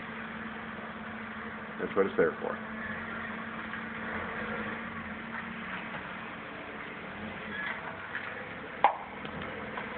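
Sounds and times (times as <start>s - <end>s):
background hum and hiss: 0.0s - 9.9s.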